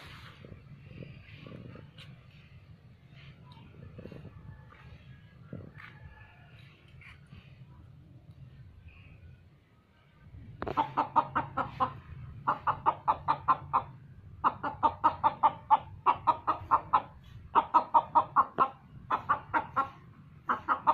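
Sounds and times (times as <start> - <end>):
rooster clucking: 10.6 - 20.9.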